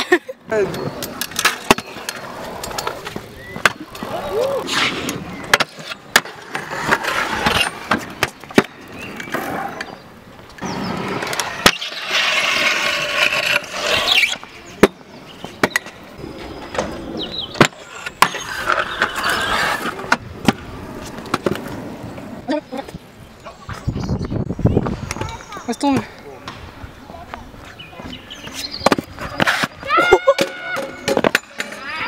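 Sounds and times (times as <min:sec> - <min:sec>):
scooter wheels rolling and scraping: 0:00.0 - 0:32.0
scooter decks clacking on concrete: 0:00.5 - 0:04.4, 0:28.0 - 0:32.0
grinding scrape on concrete: 0:10.6 - 0:14.5, 0:17.6 - 0:20.1.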